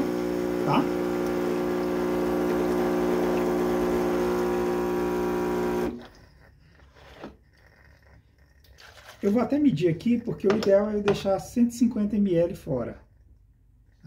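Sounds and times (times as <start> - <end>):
espresso machine pump humming: 0.0 - 6.2.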